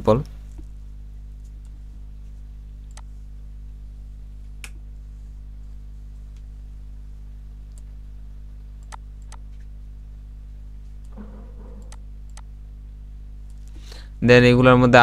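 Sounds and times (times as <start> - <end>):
low electrical hum: 0.0 - 15.0
computer mouse clicks: 2.9 - 3.1, 8.8 - 9.7, 11.0 - 12.5.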